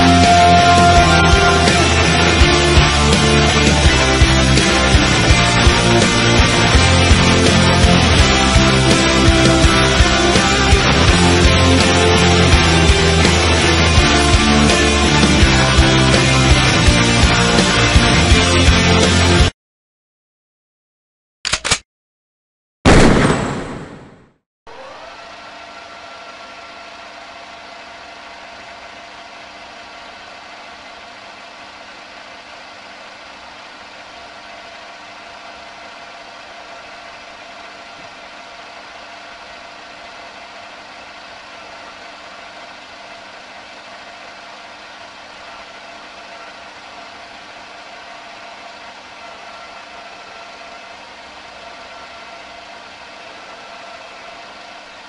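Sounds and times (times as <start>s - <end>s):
lathe motor whining: 0.0s - 18.2s.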